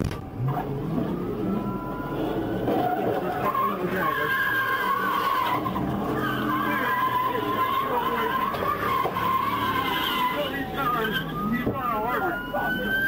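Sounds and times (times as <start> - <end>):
car engines running hard: 0.0 - 13.0
wheels spinning in dirt: 0.0 - 13.0
wavering squeal: 0.4 - 13.0
tyres squealing: 0.5 - 13.0.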